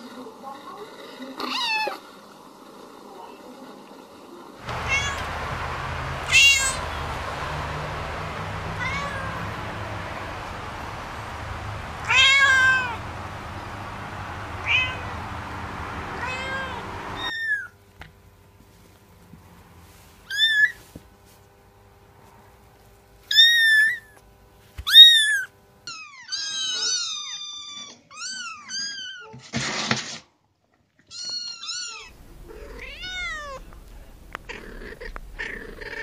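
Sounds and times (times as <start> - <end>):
background hiss: 4.6 - 17.3, 32.1 - 36.0
cat meowing: 4.7 - 9.5, 12.0 - 13.0, 14.6 - 15.2, 16.2 - 17.6, 31.1 - 36.0.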